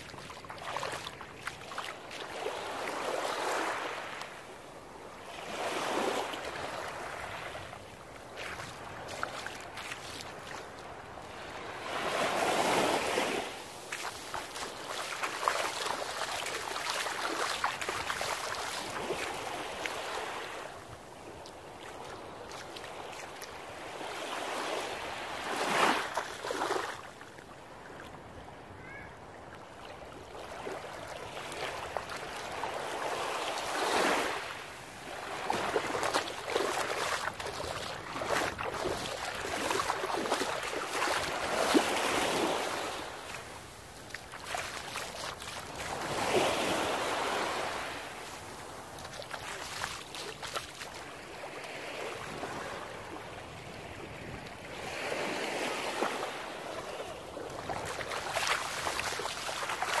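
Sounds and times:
sea waves breaking on sand: 0:00.0 - 0:27.3, 0:30.1 - 1:00.0.

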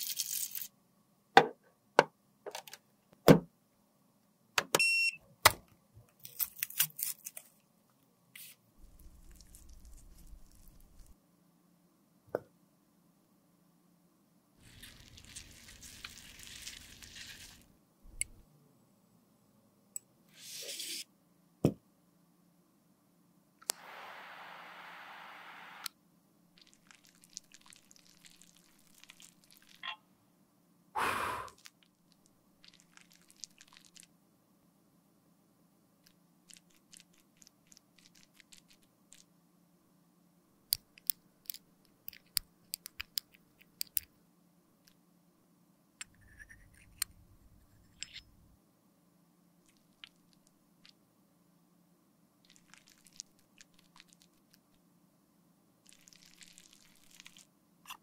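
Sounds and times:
steady hiss: 0:23.6 - 0:25.9.

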